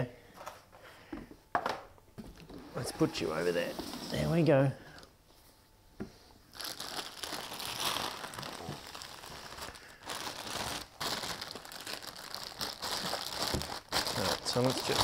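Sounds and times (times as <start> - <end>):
plastic bag crinkling: 6.5 - 15.0.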